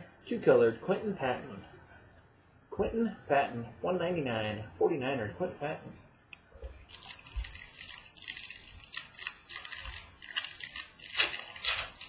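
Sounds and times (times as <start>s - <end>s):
cards and packaging rustling: 6.7s - 12.0s.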